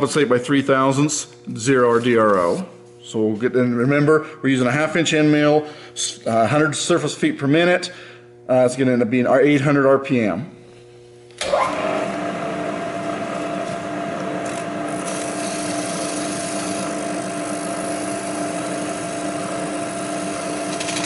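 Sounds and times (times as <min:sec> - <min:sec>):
milling machine spindle whirring: 0:11.4 - 0:21.0.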